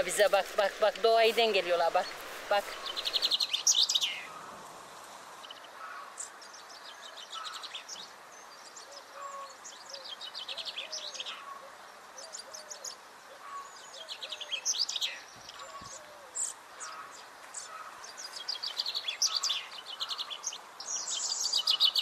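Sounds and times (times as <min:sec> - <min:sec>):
faint outdoor hiss: 0:00.0 - 0:22.0
songbirds trilling: 0:00.0 - 0:22.0.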